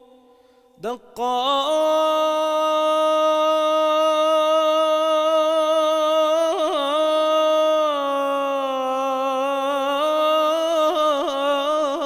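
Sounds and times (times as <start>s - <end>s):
person singing a long chant note: 0.0s - 12.0s.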